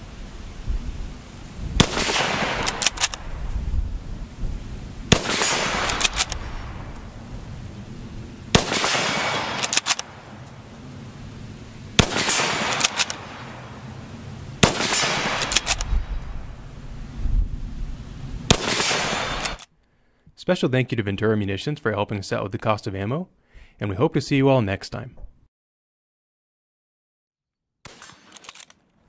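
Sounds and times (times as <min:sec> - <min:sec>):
rifle shots echoing: 0:01.8 - 0:03.4, 0:05.1 - 0:07.3, 0:08.5 - 0:10.6, 0:11.9 - 0:16.5, 0:18.5 - 0:19.7, 0:27.8 - 0:28.5
rifle bolt clicks: 0:02.6 - 0:03.2, 0:05.8 - 0:06.4, 0:09.3 - 0:10.1, 0:12.6 - 0:13.2, 0:15.3 - 0:16.0, 0:19.4 - 0:19.7, 0:27.9 - 0:28.8.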